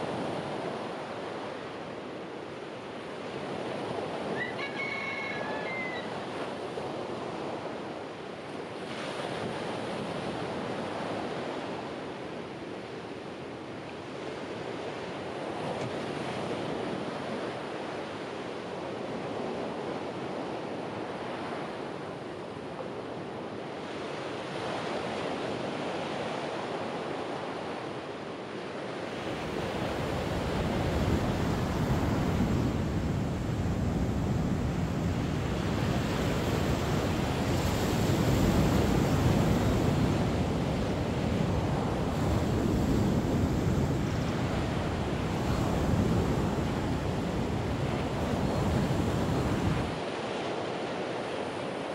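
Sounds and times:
ocean surf washing ashore: 0:00.0 - 0:51.9
wind rumbling on microphone: 0:28.9 - 0:51.9.

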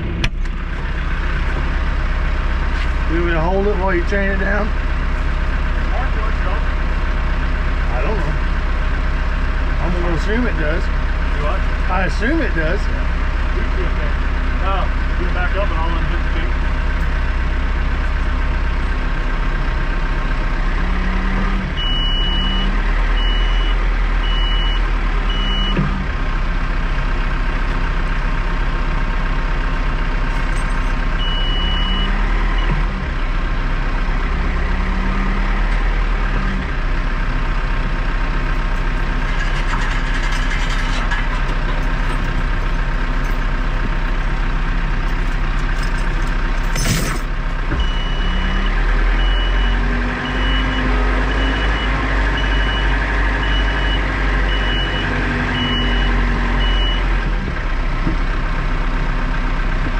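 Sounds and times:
tractor engine running: 0:00.0 - 0:59.9
reversing alarm beeps: 0:21.8 - 0:25.8, 0:31.2 - 0:32.8, 0:47.8 - 0:57.1.

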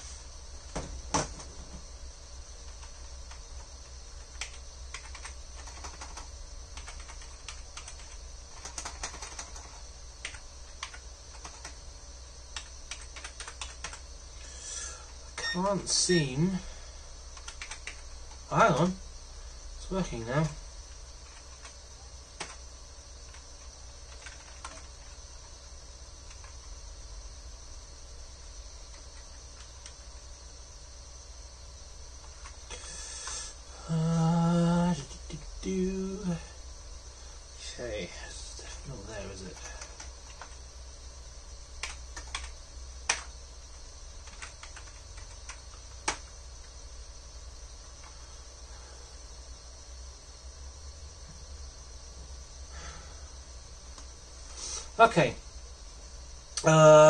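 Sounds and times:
desktop computer hum and whine: 0:00.0 - 0:57.0
computer keyboard typing: 0:04.2 - 0:11.8, 0:12.5 - 0:14.0, 0:17.4 - 0:18.4, 0:22.4 - 0:22.6, 0:23.3 - 0:25.2, 0:39.6 - 0:40.6, 0:41.8 - 0:43.3, 0:44.2 - 0:46.3.

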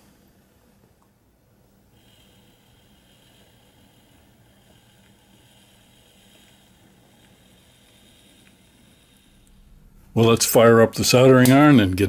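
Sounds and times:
low hum: 0:01.0 - 0:12.0
model train motor whine: 0:01.2 - 0:11.4.

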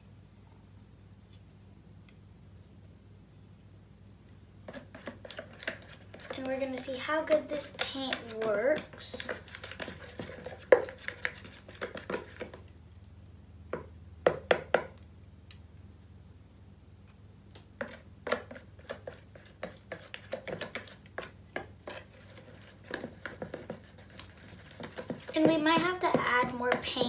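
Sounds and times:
plastic spoon scraping a bowl: 0:04.6 - 0:12.6, 0:17.8 - 0:27.0.

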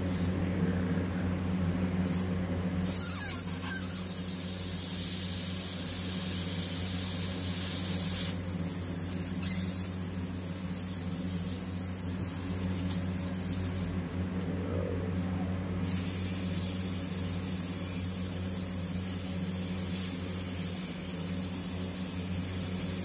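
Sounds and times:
steady low hum: 0:00.0 - 0:23.0
airbrush hissing: 0:02.0 - 0:14.0, 0:15.8 - 0:23.0.

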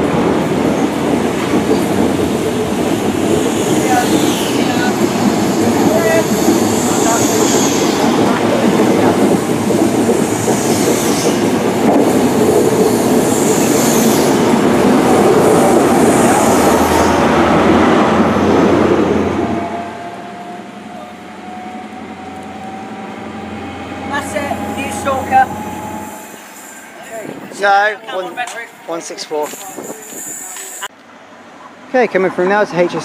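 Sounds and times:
train coaches rumbling over rails: 0:00.0 - 0:33.0.

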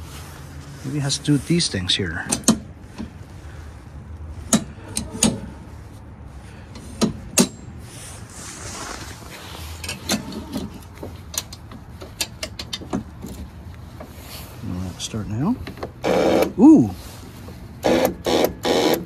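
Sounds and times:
metal lever clicks and clunks: 0:02.2 - 0:03.1.

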